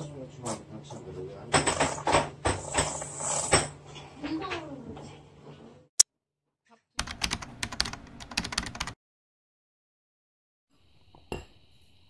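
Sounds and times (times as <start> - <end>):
rapid keyboard typing clicks: 7.0 - 9.0.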